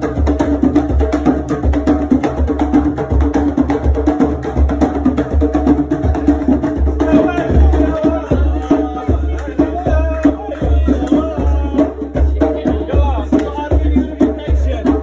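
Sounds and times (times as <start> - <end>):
driving drum beat: 0.0 - 15.0
voices singing: 5.1 - 15.0.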